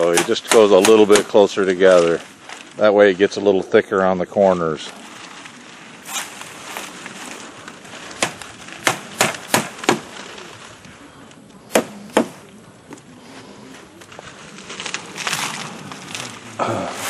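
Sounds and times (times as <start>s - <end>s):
hammer driving nails into wood: 11.7s - 12.3s.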